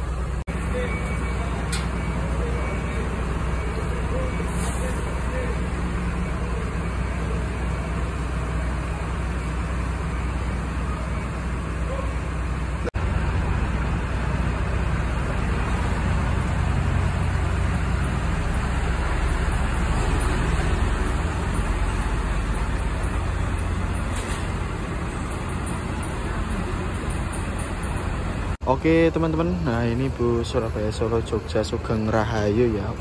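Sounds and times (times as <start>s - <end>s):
bus diesel engine rumbling: 0.0s - 33.0s
road and traffic noise: 0.0s - 33.0s.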